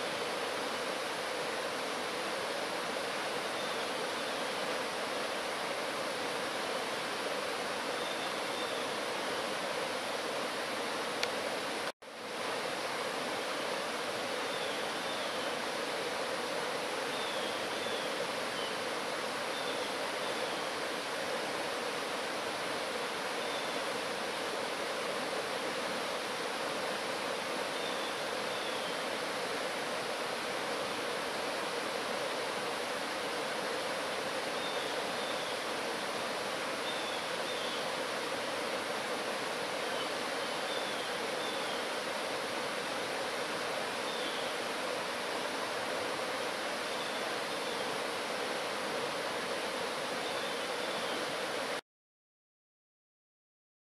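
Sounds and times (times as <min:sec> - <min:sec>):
stream rushing over rocks: 0:00.0 - 0:51.8.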